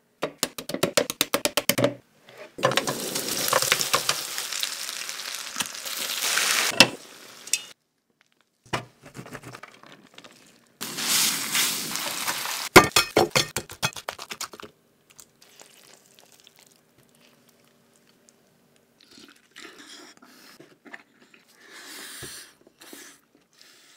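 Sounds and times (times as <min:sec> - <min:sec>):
crackles and clicks: 0:02.6 - 0:06.8
meatballs sizzling in a frying pan: 0:02.7 - 0:07.7
faint chewing: 0:14.2 - 0:21.7.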